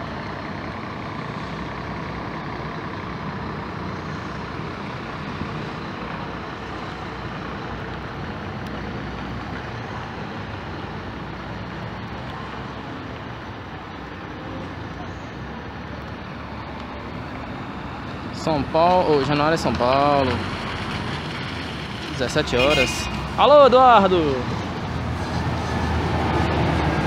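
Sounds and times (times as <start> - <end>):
bus diesel engine rumbling: 0.0 - 27.0.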